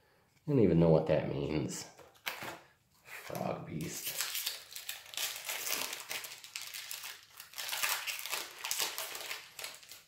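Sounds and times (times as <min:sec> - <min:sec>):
foil wrapper crinkling: 0:03.3 - 0:10.0.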